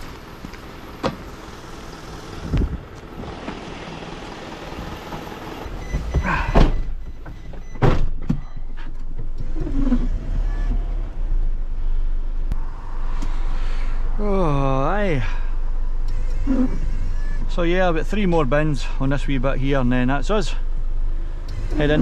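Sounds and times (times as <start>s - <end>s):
diesel truck engine running: 0.0s - 7.8s, 14.2s - 22.0s
cab door shutting: 5.0s - 10.1s.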